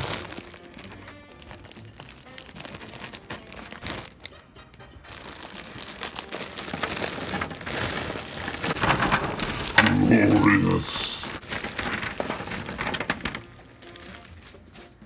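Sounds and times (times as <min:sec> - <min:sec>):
rubber figures pouring onto a pile: 0:00.0 - 0:04.3, 0:05.1 - 0:14.8
background music: 0:00.0 - 0:08.8, 0:09.6 - 0:15.0
scissors cutting plastic: 0:00.0 - 0:10.4
plastic bag crinkling: 0:00.0 - 0:15.0.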